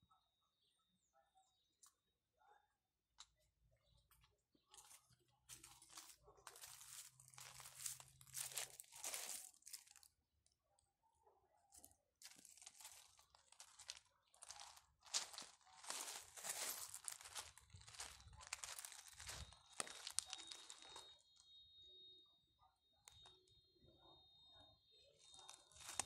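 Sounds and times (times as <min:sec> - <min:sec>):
footsteps on gravel: 0:04.8 - 0:10.0, 0:12.2 - 0:21.0, 0:25.3 - 0:26.0.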